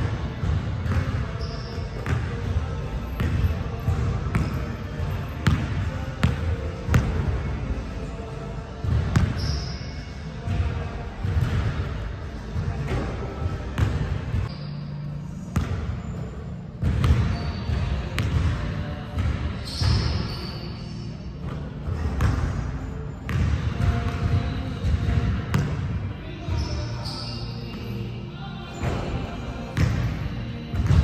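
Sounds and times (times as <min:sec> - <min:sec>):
basketballs bouncing on wooden floor: 0:16.8 - 0:18.6, 0:23.3 - 0:25.8, 0:30.7 - 0:31.0.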